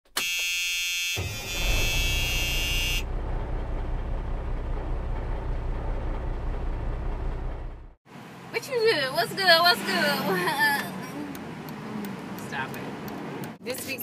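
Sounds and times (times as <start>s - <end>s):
harsh buzzer-like tone: 0.2s - 3.1s
low vehicle rumble: 1.2s - 8.1s.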